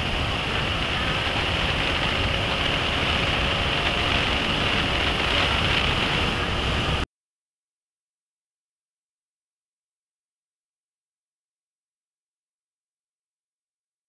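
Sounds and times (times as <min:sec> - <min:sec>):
wind rushing over microphone: 0:00.0 - 0:07.1.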